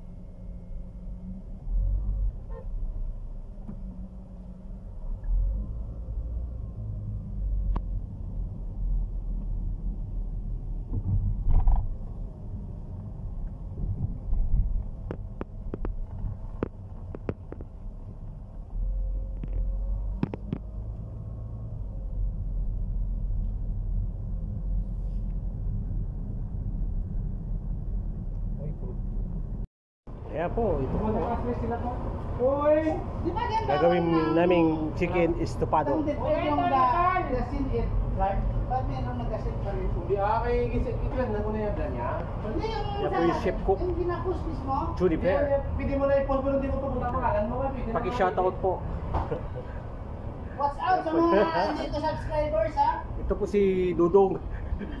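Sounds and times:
car driving rumble inside cabin: 0:00.0 - 0:29.7.

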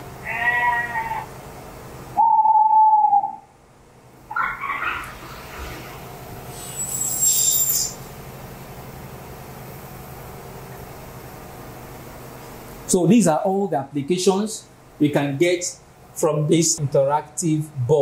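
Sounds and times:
high whistle-like call: 0:02.2 - 0:03.5, 0:06.6 - 0:08.0
hoot-like call: 0:02.2 - 0:03.5
recorded animal calls: 0:04.3 - 0:05.2.

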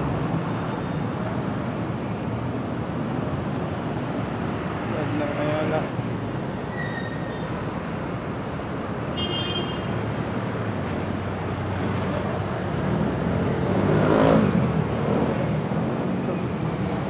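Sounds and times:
road traffic noise: 0:00.0 - 0:17.0
high squeal: 0:06.7 - 0:07.5
vehicle passing close by: 0:12.8 - 0:15.3.

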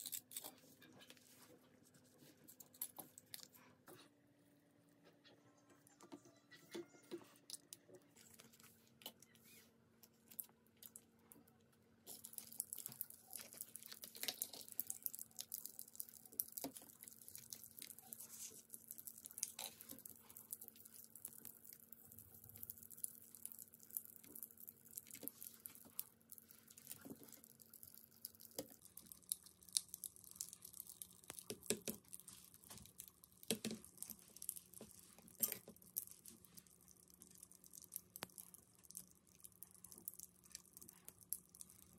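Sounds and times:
plastic packaging clicks and crinkles: 0:12.0 - 0:41.9.

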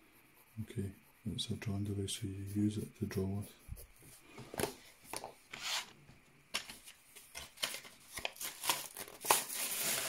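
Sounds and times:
box being ripped open: 0:08.3 - 0:10.0.

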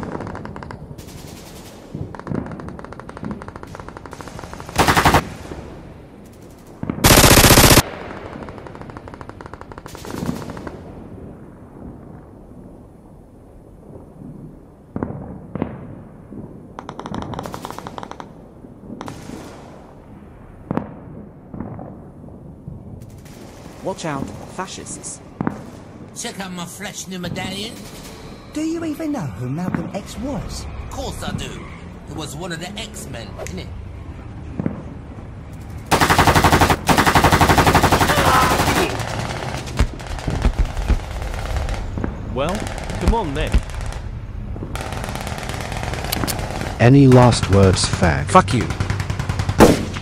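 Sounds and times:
background rumble: 0:00.0 - 0:50.0
automatic gunfire bursts: 0:07.0 - 0:07.8
machine-gun burst: 0:07.0 - 0:07.8, 0:44.8 - 0:48.1
single gunshots: 0:49.0 - 0:50.0.

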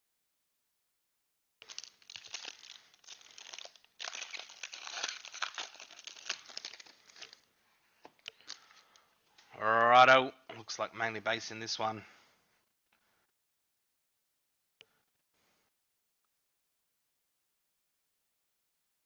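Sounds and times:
foil wrapper crinkling and tearing: 0:01.6 - 0:07.5.

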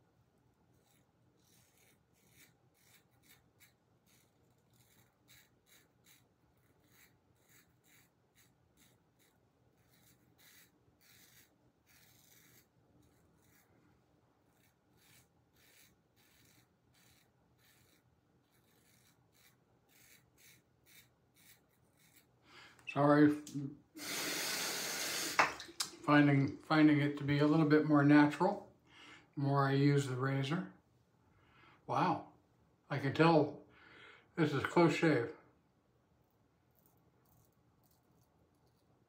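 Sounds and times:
razor scraping stubble: 0:00.7 - 0:26.0, 0:36.7 - 0:38.9.

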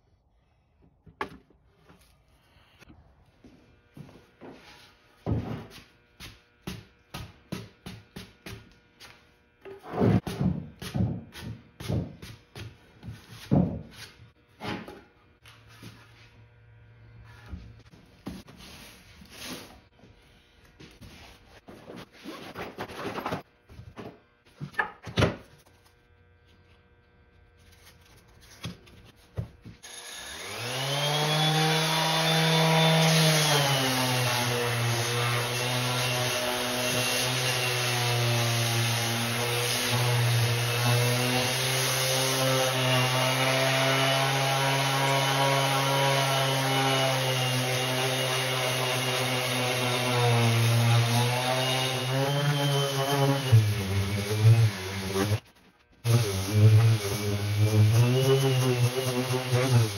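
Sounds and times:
sander motor hum and whine: 0:29.8 - 0:55.4
sanding disc rasping on wood: 0:30.5 - 0:59.9.

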